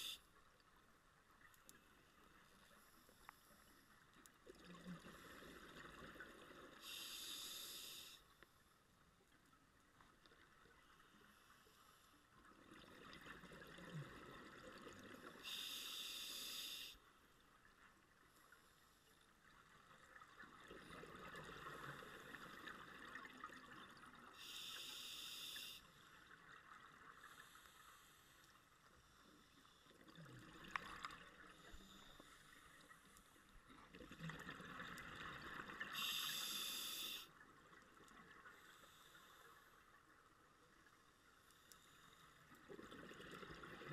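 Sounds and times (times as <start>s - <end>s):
regulator hiss: 0.0s - 0.2s, 6.8s - 8.2s, 15.4s - 17.0s, 24.4s - 26.0s, 35.9s - 37.3s.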